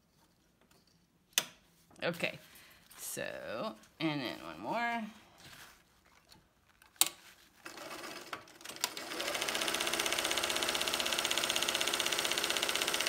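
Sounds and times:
sewing machine stitching: 0:07.6 - 0:13.0.

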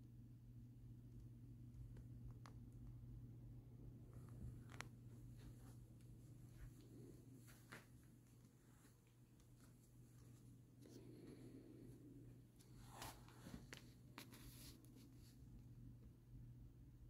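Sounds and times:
faint scratching and rubbing: 0:04.1 - 0:15.8.

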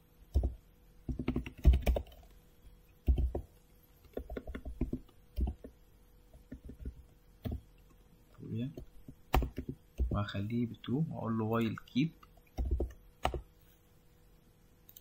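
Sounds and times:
typing on computer keyboard: 0:00.3 - 0:02.3, 0:03.0 - 0:05.7, 0:06.4 - 0:07.6, 0:12.4 - 0:13.5.

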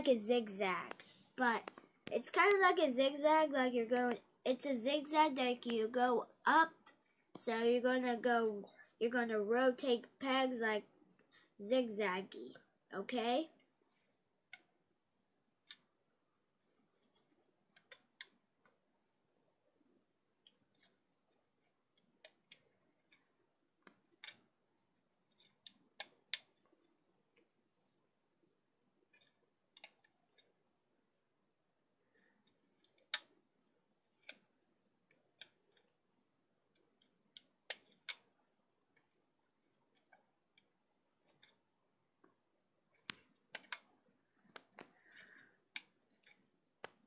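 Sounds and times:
rubber bands clicking onto pegs: 0:17.0 - 0:18.8, 0:20.4 - 0:24.5, 0:25.3 - 0:26.7, 0:29.1 - 0:30.8, 0:32.4 - 0:33.4, 0:34.2 - 0:36.0, 0:36.7 - 0:39.1, 0:42.9 - 0:47.0.

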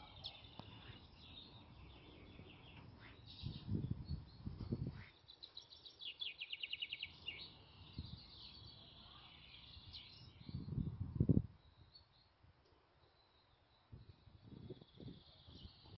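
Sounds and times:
chaffinches singing: 0:00.0 - 0:12.4, 0:13.0 - 0:15.9
low rumbles on microphone: 0:10.4 - 0:11.6.

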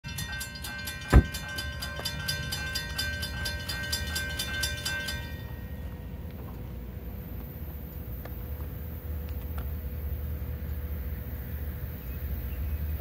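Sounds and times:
railroad crossing bell ringing: 0:00.0 - 0:07.6.

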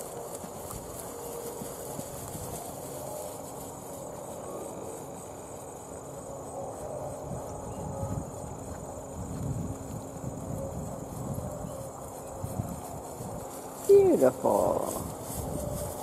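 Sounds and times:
hoofbeats on grass: 0:00.0 - 0:16.0
high-pitched insect drone: 0:01.0 - 0:16.0.

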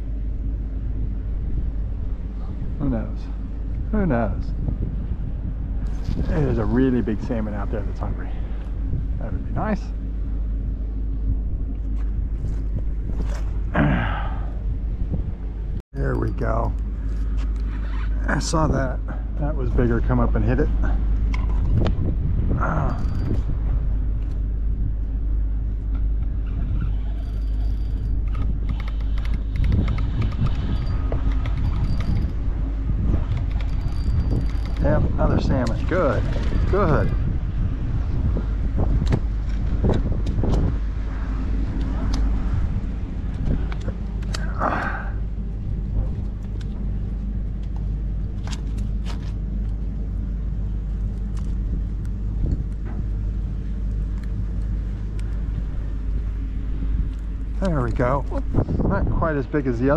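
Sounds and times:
steady low rumble: 0:00.0 - 0:59.9
spinning reel clicking: 0:27.1 - 0:32.4, 0:33.3 - 0:34.9.

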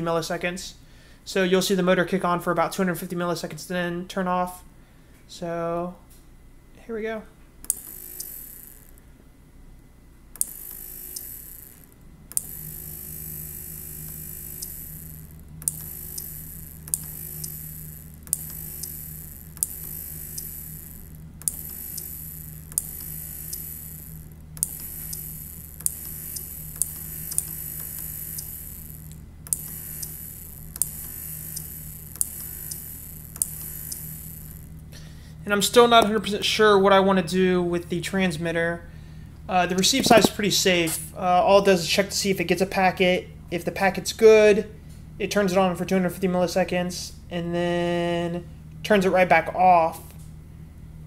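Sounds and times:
steady low hum: 0:00.0 - 0:51.0
relay clicking: 0:07.6 - 0:09.0, 0:10.4 - 0:34.8
small motor running: 0:07.7 - 0:09.1, 0:10.4 - 0:36.0, 0:39.8 - 0:40.3.

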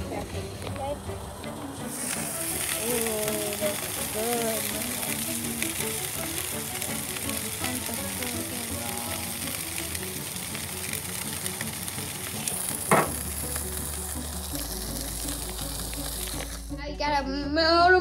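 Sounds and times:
burger patties sizzling on grill: 0:00.0 - 0:16.8
sharp knock: 0:12.9 - 0:13.2.

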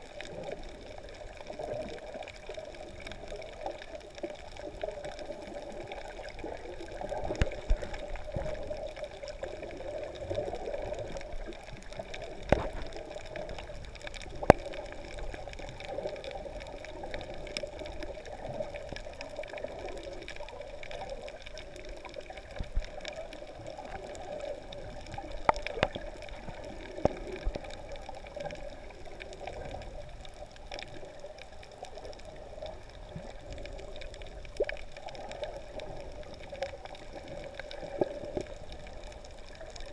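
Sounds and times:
muffled underwater water wash: 0:00.0 - 0:39.9
sharp underwater clicks: 0:07.1 - 0:09.5, 0:10.3 - 0:31.5.

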